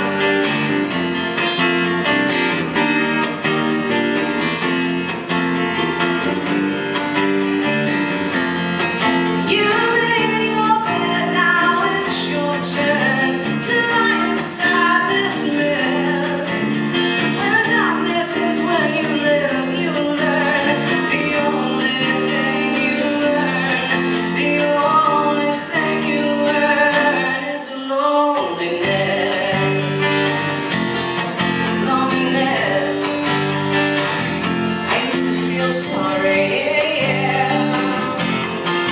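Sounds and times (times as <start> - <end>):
acoustic guitar strumming: 0.0 - 38.9
woman singing: 9.0 - 33.9, 34.6 - 38.9.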